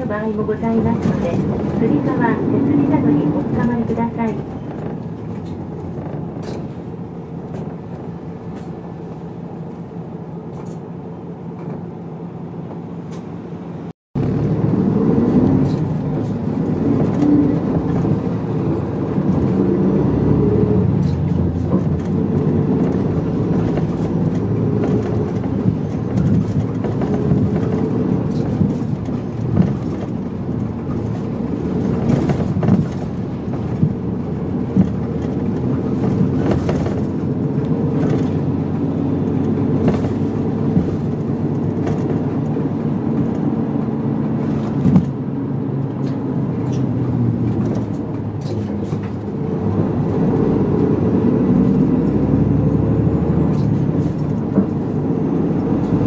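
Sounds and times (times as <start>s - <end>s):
bus diesel engine: 0.0s - 56.0s
road noise: 0.0s - 56.0s.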